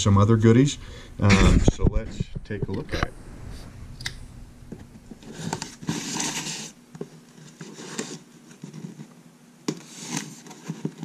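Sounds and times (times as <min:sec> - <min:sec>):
cardboard box scraping on wood: 0:05.2 - 0:06.8.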